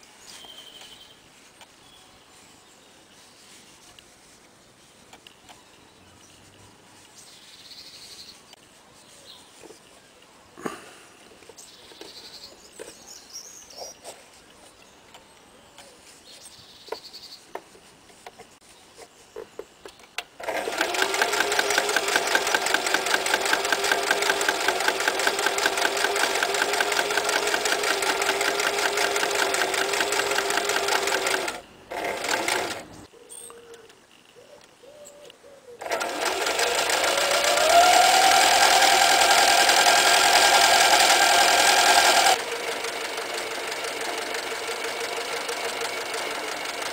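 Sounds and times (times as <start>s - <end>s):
electric sewing machine stitching: 20.4s - 33.0s, 35.8s - 46.9s.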